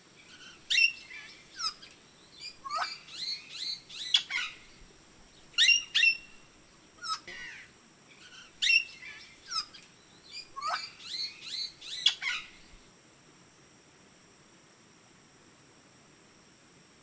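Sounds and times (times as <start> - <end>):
faint high-pitched hiss: 0.0 - 17.0
birds chirping and whistling: 0.3 - 4.8, 5.6 - 6.4, 8.2 - 12.8.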